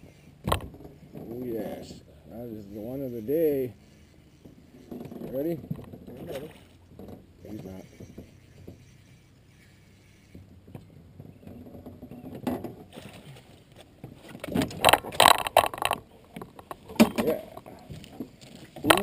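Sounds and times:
knocking and clattering in metal boat: 13.9s - 19.0s.

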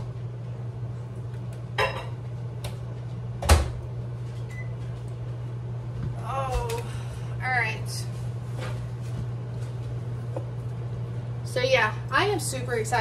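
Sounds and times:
microwave door shutting: 3.4s - 3.8s.

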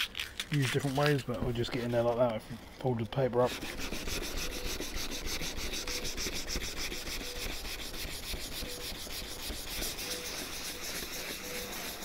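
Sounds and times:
sandpaper rubbing on plastic: 3.4s - 12.0s.

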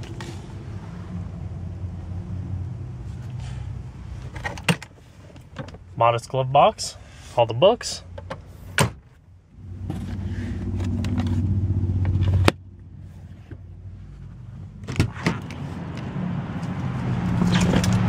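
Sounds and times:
glove box door clicking shut: 8.2s - 9.0s.

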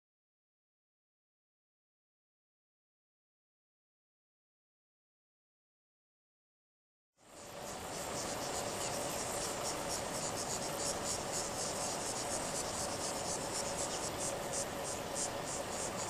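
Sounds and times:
insects calling in pulsing chorus: 7.2s - 16.0s
steady low hum: 7.2s - 16.0s.

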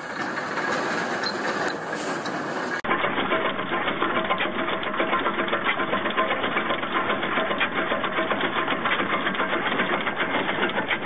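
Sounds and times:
stationary engine clattering: 0.0s - 11.0s.

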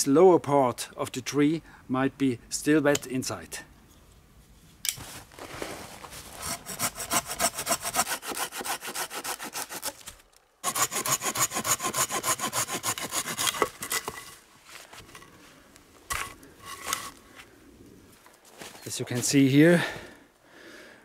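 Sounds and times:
hand saw cutting wood: 6.3s - 14.4s.

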